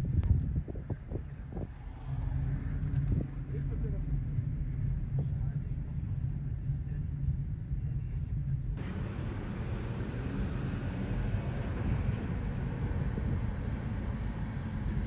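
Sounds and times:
road traffic rumble: 0:08.8 - 0:15.0.

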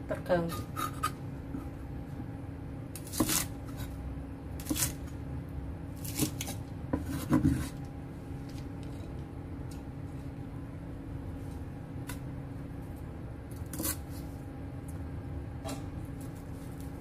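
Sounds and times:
faint steady hum: 0:00.0 - 0:17.0
knife chopping on wooden board: 0:03.0 - 0:03.9, 0:06.0 - 0:07.7.

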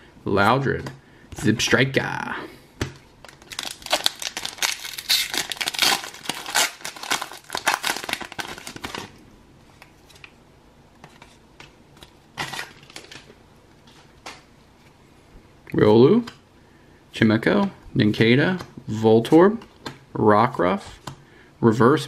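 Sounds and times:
cards rustling: 0:03.2 - 0:09.1
foil wrapper tearing and crinkling: 0:03.3 - 0:09.1.

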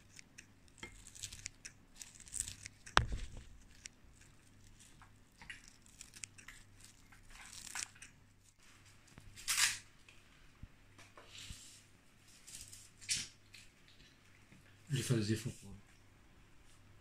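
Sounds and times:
faint rustling and scraping: 0:00.0 - 0:16.0.

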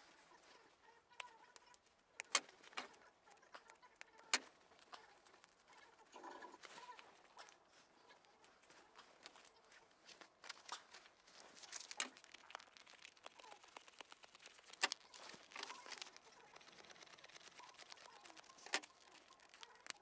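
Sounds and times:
fabric crinkling and tearing: 0:00.4 - 0:20.0
sharp clicks: 0:01.2 - 0:05.6, 0:11.7 - 0:20.0.

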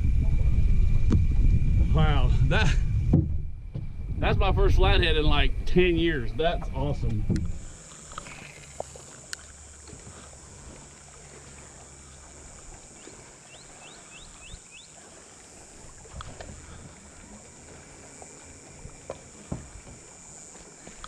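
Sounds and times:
electric motor humming: 0:00.0 - 0:21.0
bird chirping: 0:13.0 - 0:15.0.

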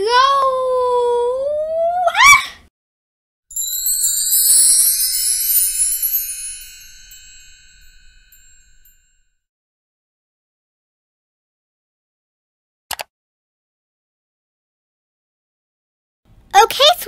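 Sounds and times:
sparkly tinkling chime: 0:03.5 - 0:09.1.

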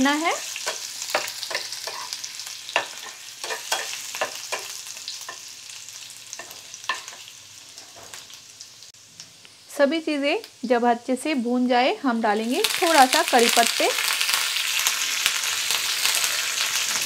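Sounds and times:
oil sizzling in a pan: 0:00.0 - 0:17.0
spatula scraping a pan: 0:00.4 - 0:05.5.

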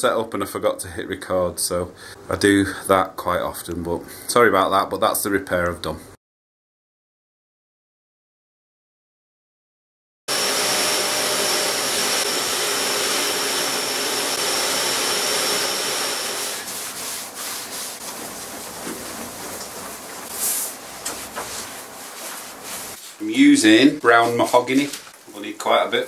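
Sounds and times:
shop vacuum whining: 0:10.3 - 0:16.7
cloth rubbing on wood: 0:16.1 - 0:23.4.

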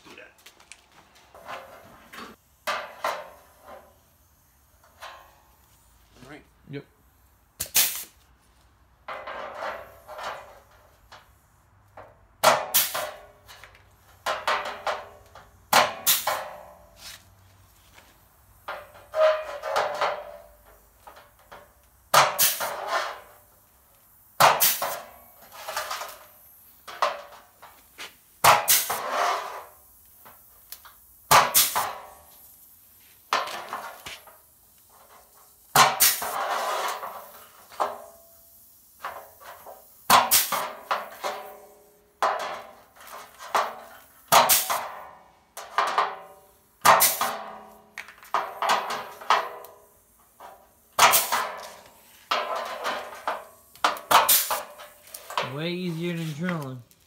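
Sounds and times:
pneumatic punch metallic snap: 0:02.6 - 0:03.9, 0:04.8 - 0:05.5, 0:07.6 - 0:08.2, 0:12.4 - 0:17.0, 0:18.6 - 0:27.8, 0:28.4 - 0:32.5, 0:33.3 - 0:55.5
air hiss bursts: 0:07.0 - 0:08.4, 0:12.4 - 0:14.3, 0:15.0 - 0:45.6, 0:46.3 - 0:57.0.

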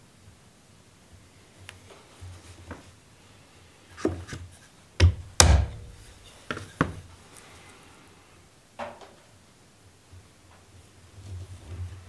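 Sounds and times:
chisel knocking into wood: 0:05.0 - 0:06.0.

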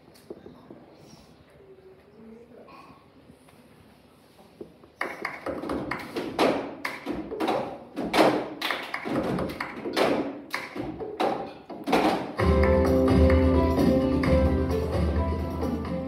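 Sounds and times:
hands clapping: 0:05.0 - 0:13.5.

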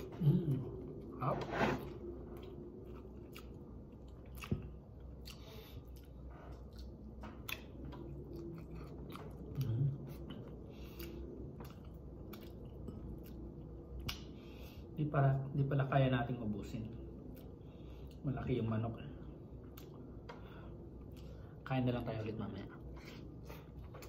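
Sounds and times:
person chewing with wet mouth clicks: 0:02.4 - 0:14.4, 0:19.6 - 0:20.4.

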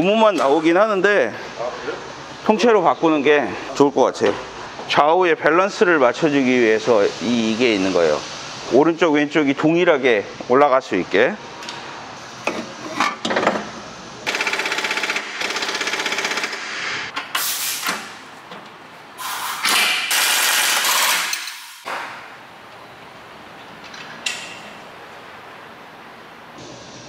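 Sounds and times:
workshop noise: 0:00.0 - 0:25.8
air impact wrench rattling: 0:14.2 - 0:17.9, 0:19.2 - 0:21.9.

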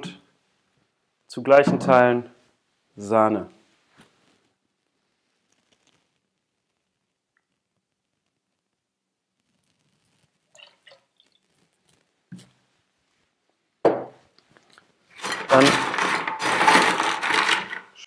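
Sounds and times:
bar tools clinking: 0:15.2 - 0:17.8
dense clatter: 0:15.2 - 0:17.9.

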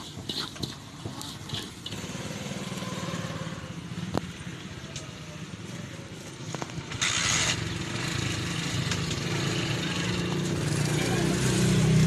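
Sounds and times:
small engine running: 0:06.9 - 0:08.7.

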